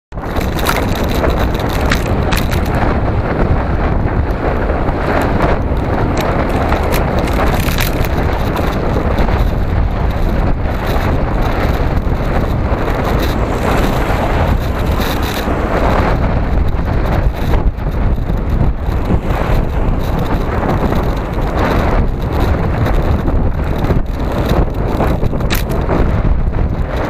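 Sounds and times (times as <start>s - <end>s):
road noise: 0.1s - 27.0s
wind rumble on microphone: 0.1s - 27.0s
car overtaking: 11.3s - 17.6s.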